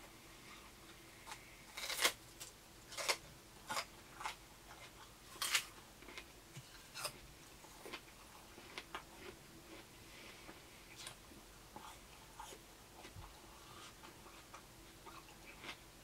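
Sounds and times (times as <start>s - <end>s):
crunching bites of raw vegetables: 1.3s - 2.2s.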